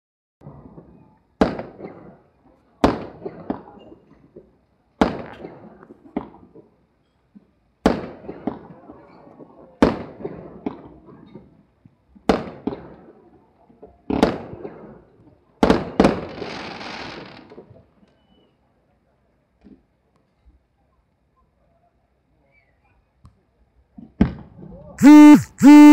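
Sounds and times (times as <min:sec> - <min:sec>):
fireworks bangs with echoes: 0:01.4 - 0:02.2, 0:02.8 - 0:03.8, 0:05.0 - 0:06.5, 0:07.8 - 0:08.8, 0:12.3 - 0:13.1, 0:14.1 - 0:14.9, 0:15.6 - 0:16.4.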